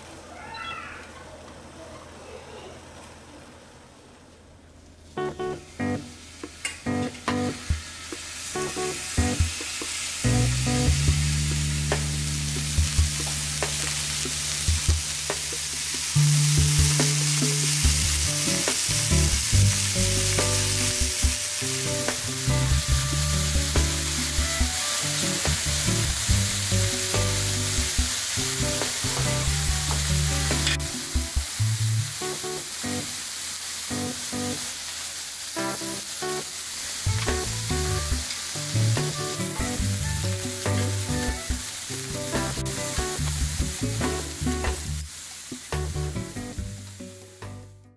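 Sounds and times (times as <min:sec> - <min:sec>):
meat sizzling on a grill: 0:05.1 - 0:47.5
light background music: 0:08.6 - 0:31.6, 0:37.1 - 0:45.0.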